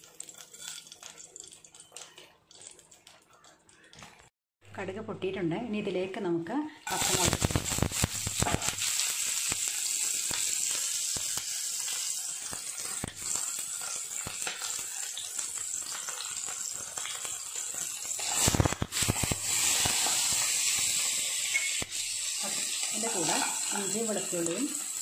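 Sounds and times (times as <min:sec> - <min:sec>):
food sizzling in oil: 0:00.0 - 0:03.6, 0:06.9 - 0:25.0
crackling and clatter: 0:00.0 - 0:04.3, 0:12.4 - 0:20.2.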